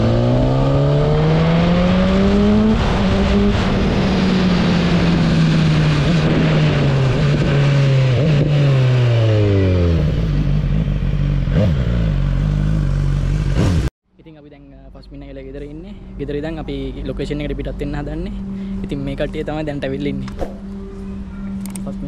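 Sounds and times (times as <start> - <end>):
motorcycle engine: 0.0 - 13.9.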